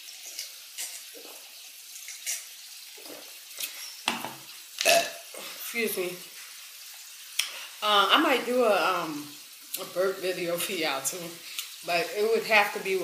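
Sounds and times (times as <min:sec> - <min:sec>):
water trickling: 0:00.0 - 0:13.0.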